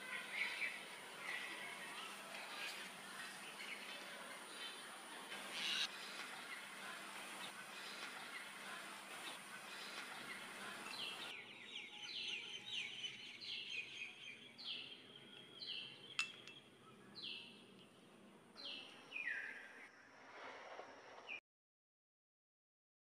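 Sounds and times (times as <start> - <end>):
bird chirping: 3.4 - 18.0.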